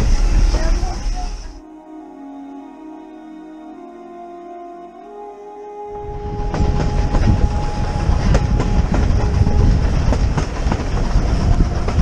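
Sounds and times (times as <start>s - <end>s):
railway carriage rumbling: 0.0s - 1.6s, 6.0s - 12.0s
wheels clicking over rail joints: 6.6s - 12.0s.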